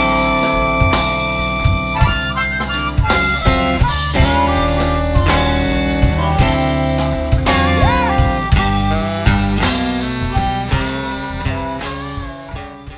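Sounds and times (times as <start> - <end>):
background music with steady beat: 0.0 - 12.9.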